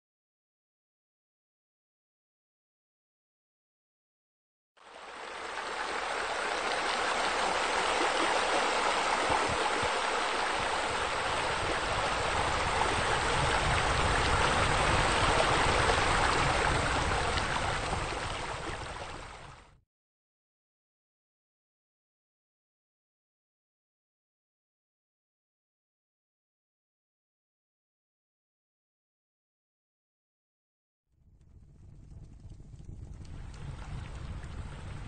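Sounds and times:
running water rushing: 4.8s - 19.7s.

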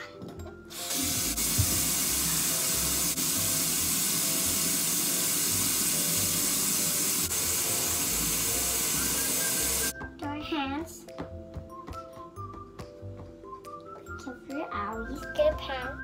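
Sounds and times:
faucet turned on: 0.7s - 9.9s
water running into sink: 0.7s - 9.9s.

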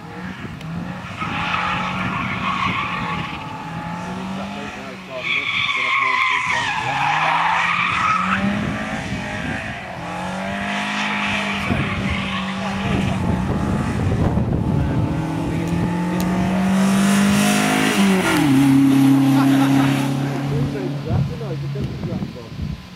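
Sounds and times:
car engine at high revs: 0.0s - 22.4s
tyres squealing: 1.0s - 10.0s.

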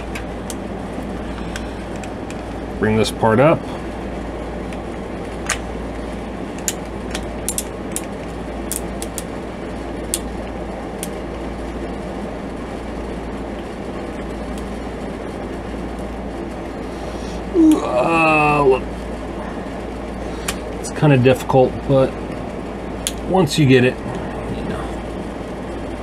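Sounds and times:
low hum and hiss: 0.0s - 26.0s.

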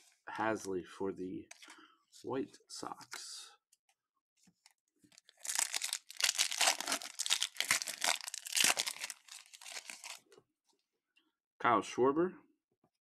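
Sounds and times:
wrapper tearing and crinkling: 5.1s - 10.2s.

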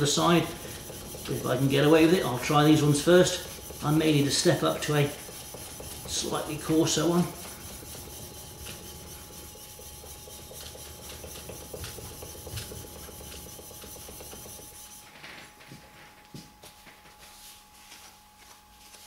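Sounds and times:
blade scraping on abrasive film: 0.0s - 12.3s.

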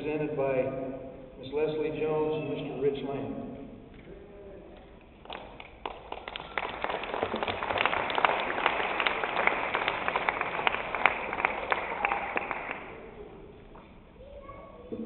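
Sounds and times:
audience applauding: 5.2s - 13.2s.

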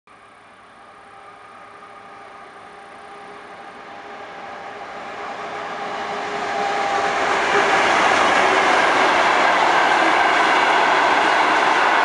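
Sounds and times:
train wheels on rails: 0.2s - 12.0s.

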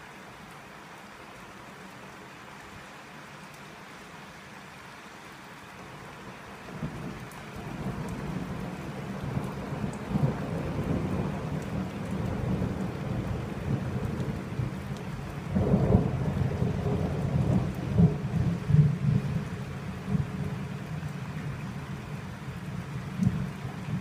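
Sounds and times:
steady rain: 0.0s - 24.0s
thunder rumbling: 6.8s - 20.6s.

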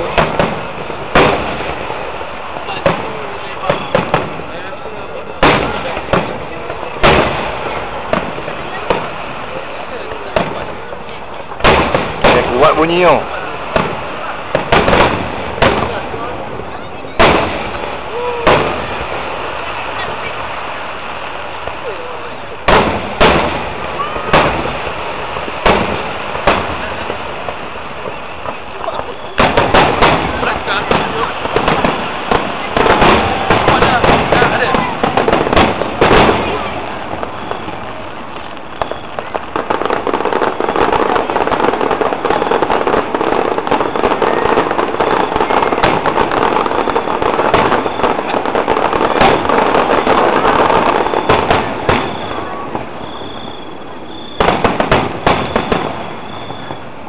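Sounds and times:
steady background noise: 0.0s - 57.0s
firework shells bursting: 22.5s - 57.0s.

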